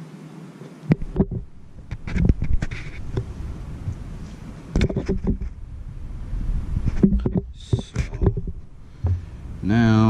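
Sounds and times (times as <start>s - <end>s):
rubbing rumble on microphone: 0.9s - 9.6s
handling knocks and clicks: 6.9s - 9.2s.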